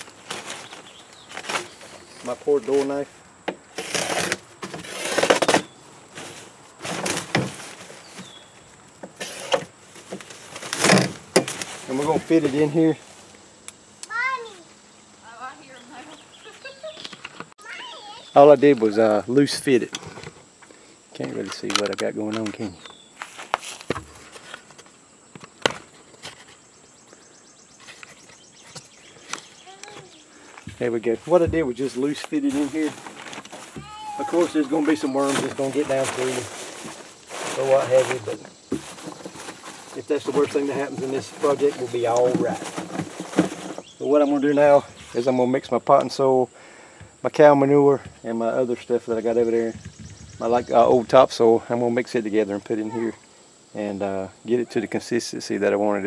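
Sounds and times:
high insect drone: 0.0 - 56.0
fabric being cut and ripped: 3.8 - 5.5
knocks and fabric rustles: 27.8 - 43.9.

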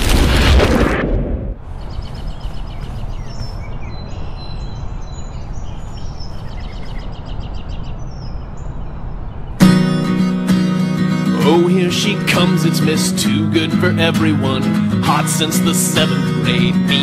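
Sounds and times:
birds chirping and whistling: 1.7 - 10.0.

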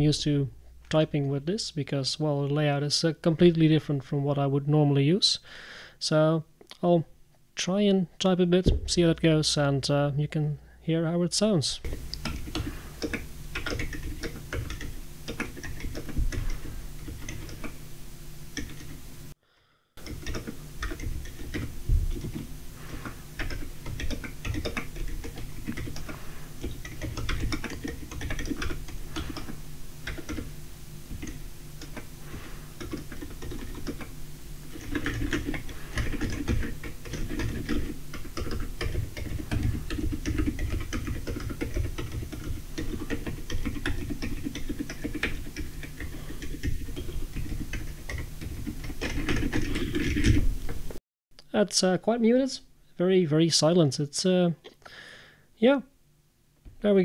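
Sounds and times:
low steady hum: 0.0 - 57.0
mechanical keyboard typing: 11.9 - 17.8, 18.6 - 19.0, 20.0 - 30.5, 31.1 - 34.1, 34.7 - 50.4.

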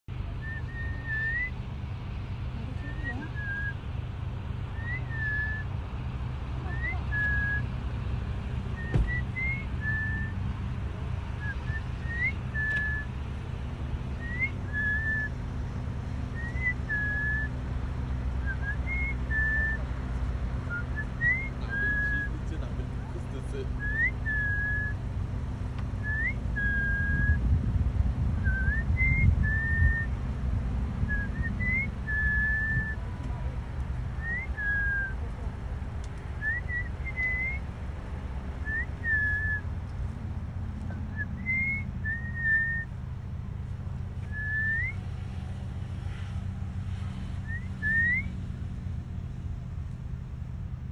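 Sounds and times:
person whistling softly: 0.4 - 1.5, 3.1 - 3.8, 4.8 - 5.6, 6.7 - 7.6, 8.8 - 10.3, 11.4 - 13.1, 14.2 - 15.3, 16.4 - 17.5, 18.4 - 19.8, 20.7 - 22.3, 23.8 - 25.0, 26.0 - 27.4, 28.4 - 30.1, 31.1 - 33.0, 34.2 - 35.2, 36.4 - 37.6, 38.7 - 39.6, 41.2 - 42.9, 44.3 - 45.0, 47.4 - 48.3.

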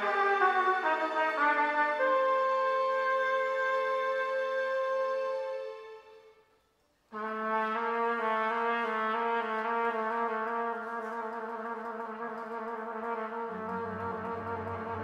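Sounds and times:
trumpet holding a long note: 0.0 - 6.0, 7.1 - 15.0
low strings: 13.3 - 15.0.

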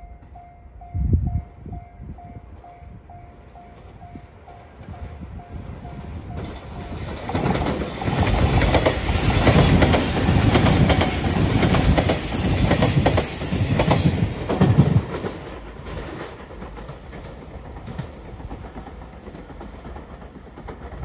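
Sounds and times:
electric train passing: 0.0 - 21.0
wheels clacking over rail joints: 5.8 - 21.0.

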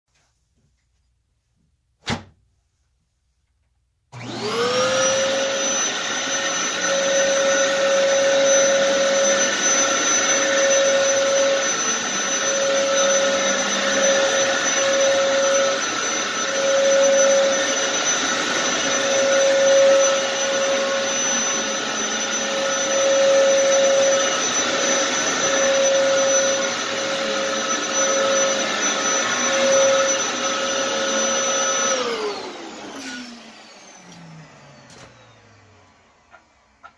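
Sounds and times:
vacuum cleaner motor whine: 4.1 - 36.9.

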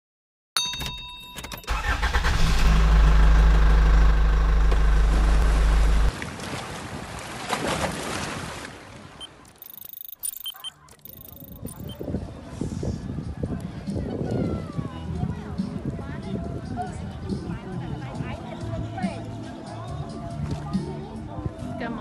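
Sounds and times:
deep steady rumble: 2.4 - 6.1.

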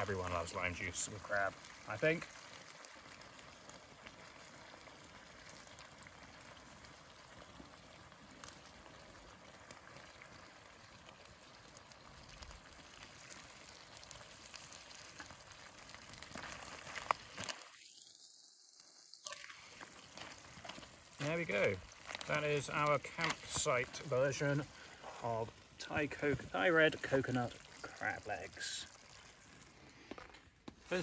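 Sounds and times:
curry bubbling in a pan: 0.0 - 31.0
small pops: 7.4 - 18.3, 18.9 - 25.7, 27.0 - 31.0.

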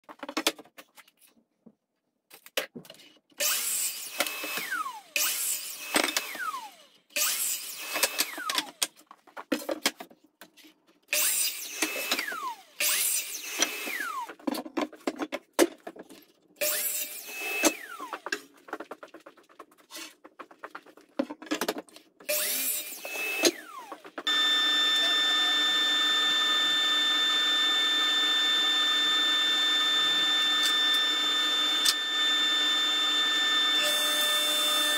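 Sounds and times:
miter saw whining and cutting: 3.4 - 8.7, 11.2 - 14.3, 16.6 - 18.2, 22.3 - 34.9.

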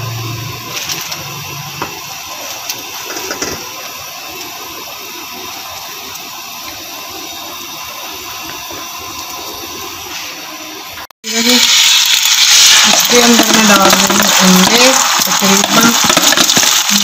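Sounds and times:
buns sizzling on a hot pan: 0.0 - 10.3, 11.3 - 17.0.

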